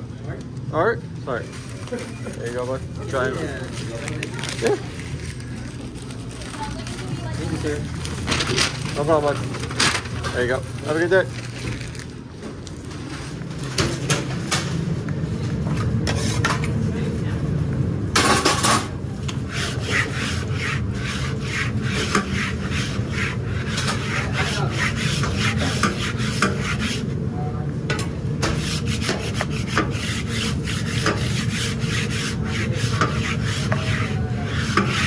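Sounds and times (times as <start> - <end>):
grill brick scraping griddle: 15.7 - 16.7, 18.2 - 27.1, 28.4 - 35.0.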